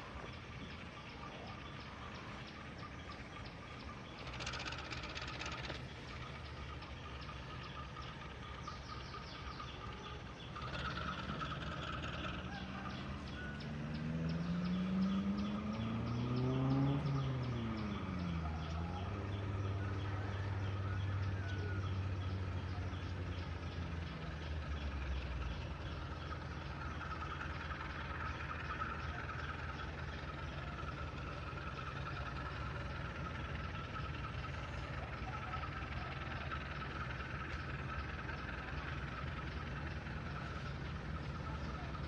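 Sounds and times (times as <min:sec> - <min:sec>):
engine humming: 0:00.0 - 0:42.0.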